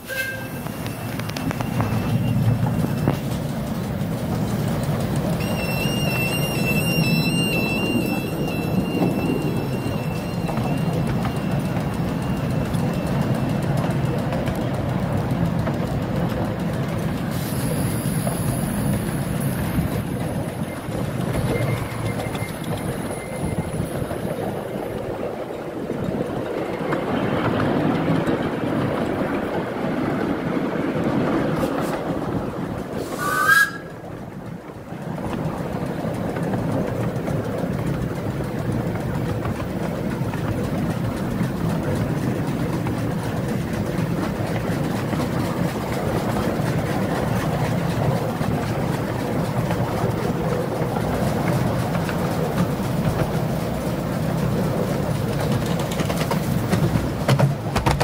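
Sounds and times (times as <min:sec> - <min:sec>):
miniature steam train rumbling: 0:00.0 - 0:58.0.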